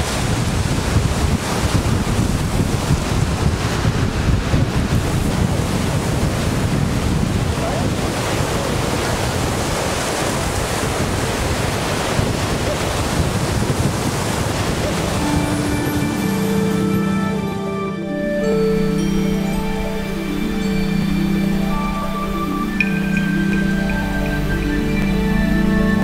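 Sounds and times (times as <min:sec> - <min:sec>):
waves crashing on rocky shore: 0:00.0 - 0:26.0
wind noise on microphone: 0:00.0 - 0:26.0
music: 0:14.8 - 0:26.0.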